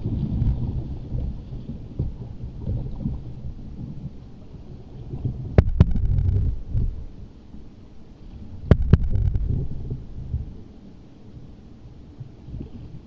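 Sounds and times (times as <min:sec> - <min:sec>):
low rumbling noise: 0:00.0 - 0:13.0
sharp knocks: 0:05.6 - 0:06.4, 0:08.7 - 0:09.5.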